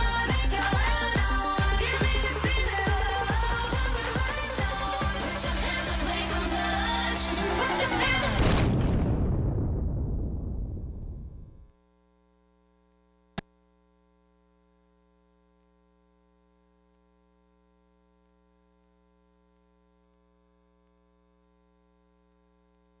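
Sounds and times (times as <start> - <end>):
loud stage sound: 0.0 - 8.8.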